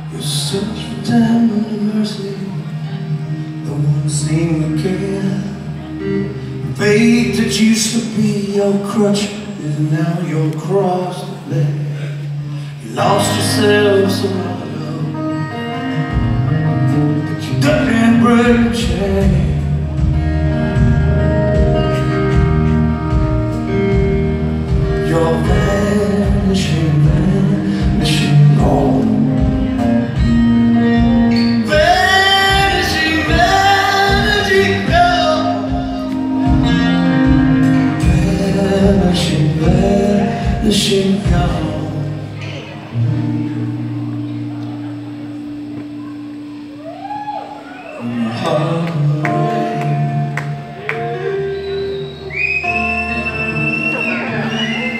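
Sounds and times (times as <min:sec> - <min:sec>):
man singing lead vocal: 0:00.0 - 0:15.7, 0:16.5 - 0:20.2, 0:24.7 - 0:30.3, 0:30.9 - 0:43.0, 0:48.0 - 0:51.4
live rock band playing: 0:00.0 - 0:54.9.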